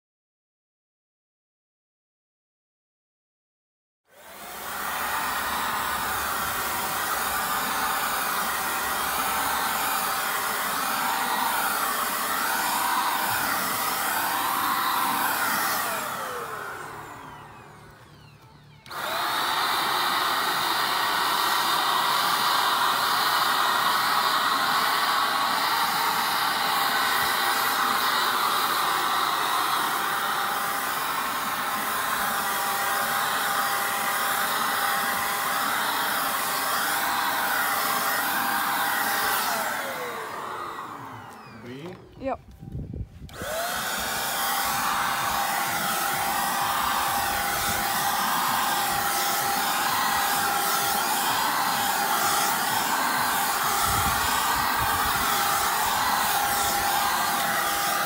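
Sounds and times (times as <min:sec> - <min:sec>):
paint spray gun motor whine: 0:04.1 - 0:58.0.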